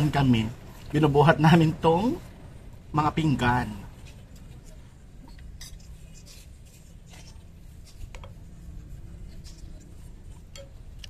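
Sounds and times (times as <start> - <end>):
steady low hum: 0.0 - 11.0
spoon scraping ceramic plate: 5.3 - 11.0.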